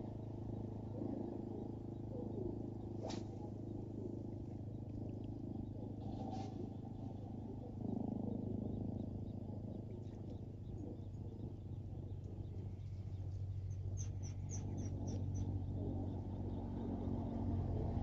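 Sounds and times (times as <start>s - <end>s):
outdoor background noise: 0.0s - 18.0s
bird chirping: 1.2s - 18.0s.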